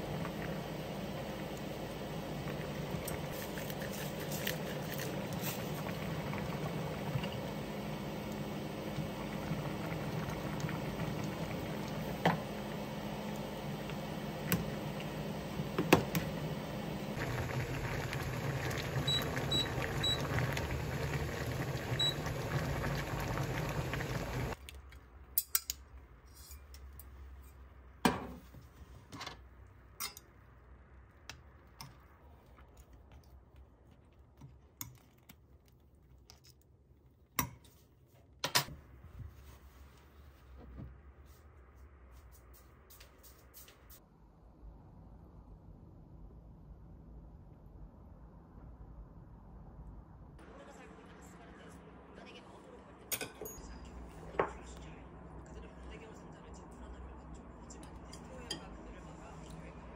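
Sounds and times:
soup bubbling at a boil: 1.6 - 12.8, 17.1 - 24.6.

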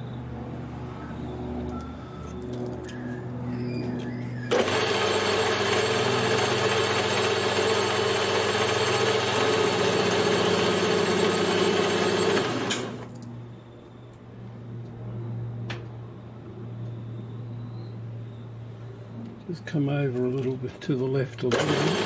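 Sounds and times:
metal lathe running: 4.5 - 13.1, 21.5 - 22.0
toolbit cutting metal: 4.5 - 13.1, 21.4 - 22.0.

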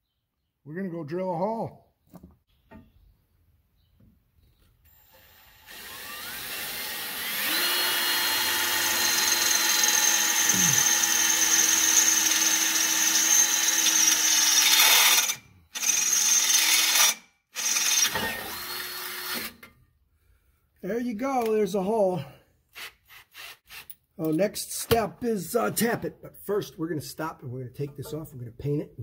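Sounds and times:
power drill whine: 4.9 - 19.7.

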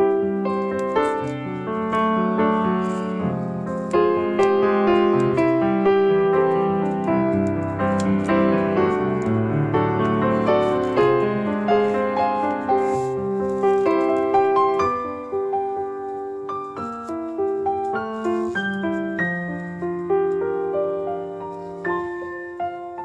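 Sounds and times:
instrumental piano music: 0.0 - 23.0.

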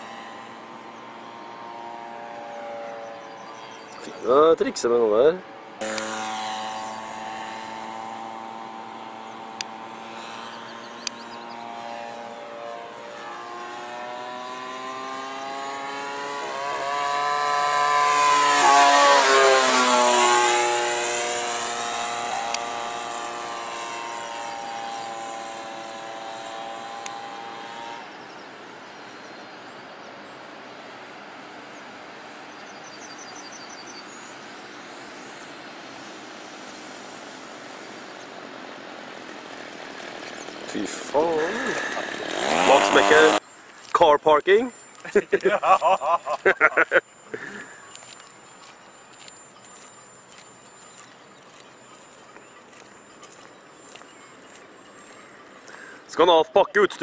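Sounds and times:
model airplane engine flying past: 0.0 - 32.5, 34.0 - 43.5.

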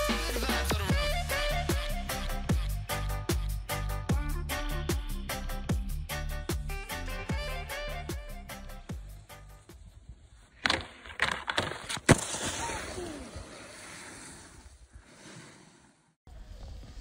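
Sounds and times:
snowboard scraping on snow: 11.8 - 17.0.

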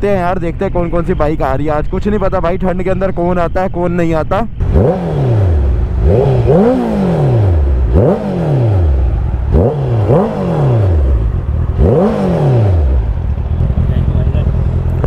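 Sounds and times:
motorcycle engine revving: 4.6 - 15.0.

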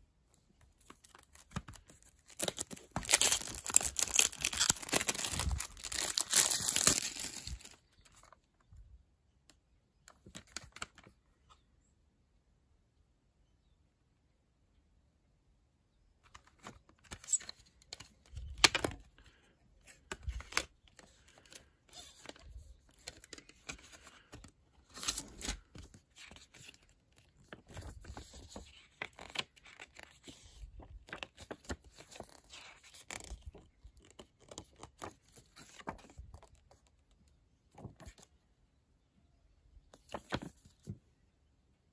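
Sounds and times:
paper rustling: 0.8 - 8.3.

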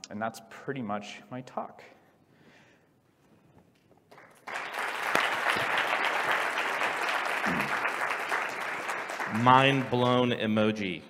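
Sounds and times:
audience applauding: 4.1 - 10.5.

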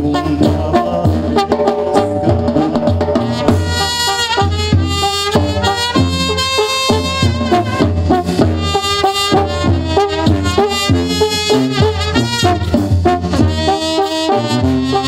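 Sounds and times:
drums: 0.0 - 15.0
trumpets and horns: 0.0 - 15.0
sousaphone bass line: 0.3 - 6.3.

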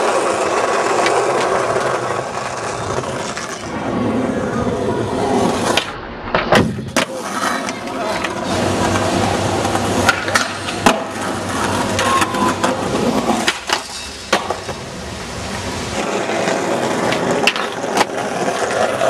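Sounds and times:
skateboard popping and landing: 0.0 - 19.0
skateboard wheels rolling on concrete: 0.0 - 19.0.

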